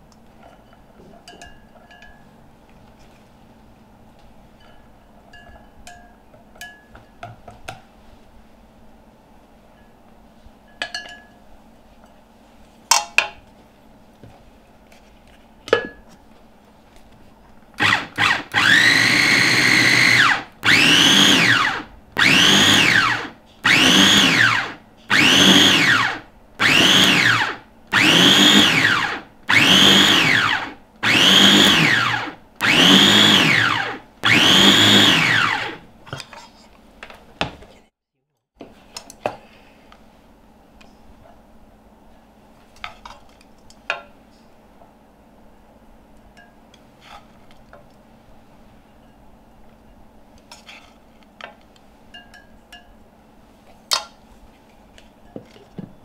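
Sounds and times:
food chopper motor whine: 17.8s - 35.8s.

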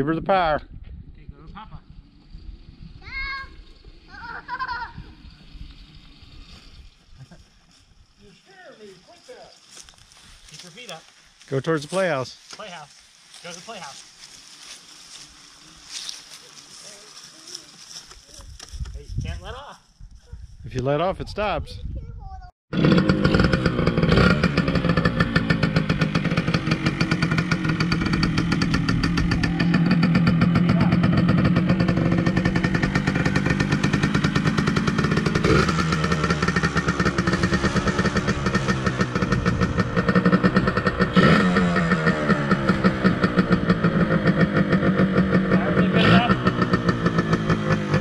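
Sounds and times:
dirt bike engine idling: 0.7s - 10.6s, 22.8s - 48.0s.

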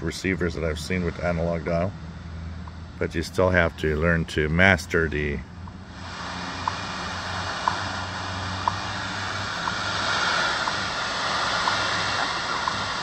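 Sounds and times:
time signal ticks: 2.6s - 5.8s, 6.6s - 13.0s
shortwave radio static: 3.0s - 13.0s.

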